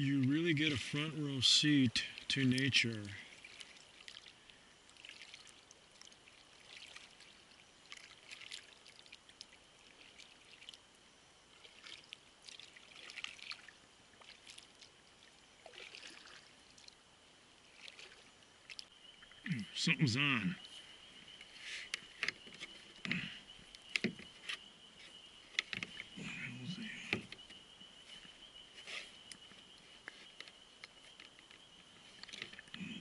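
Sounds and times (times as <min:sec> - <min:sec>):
kayak paddle splashing water: 0:00.8 - 0:10.9, 0:11.5 - 0:17.0, 0:17.6 - 0:19.4.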